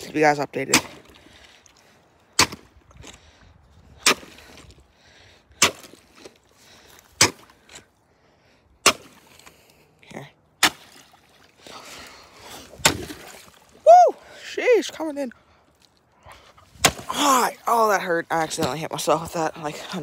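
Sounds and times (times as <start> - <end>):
paddle cracking thin ice: 10.6 - 13.9.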